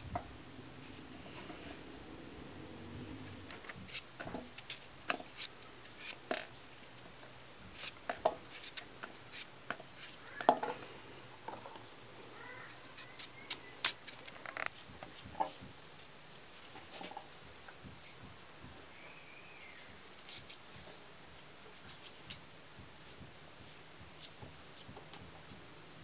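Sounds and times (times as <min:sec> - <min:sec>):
knife cutting potatoes: 0:03.5 - 0:10.4.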